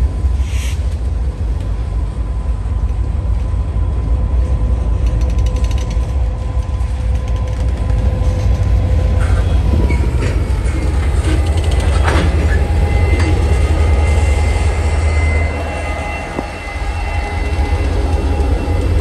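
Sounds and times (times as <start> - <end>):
locomotive engine rumble: 0.0 - 19.0
wheel squeal: 9.2 - 19.0.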